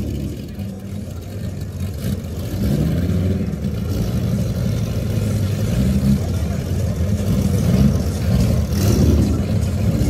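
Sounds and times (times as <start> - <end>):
race car engines rumbling: 0.0 - 10.0.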